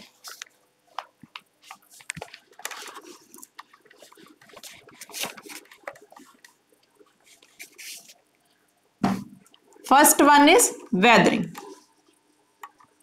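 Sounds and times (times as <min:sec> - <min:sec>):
duster wiping a whiteboard: 0:07.1 - 0:08.2.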